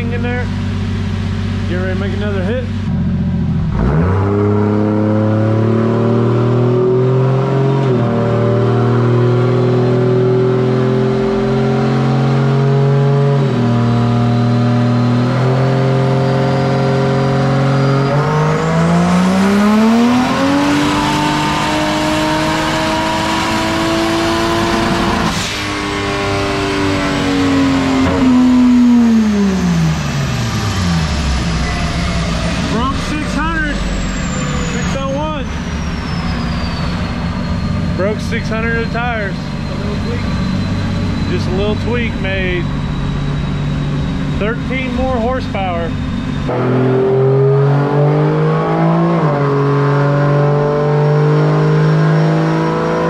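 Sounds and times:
car engine revving on dyno: 0:00.0 - 0:53.0
high turbo whine: 0:00.0 - 0:53.0.

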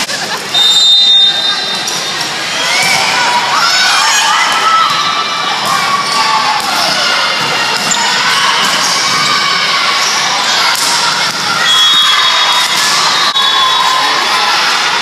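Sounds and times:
crowd calling and cheering: 0:00.0 - 0:15.0.

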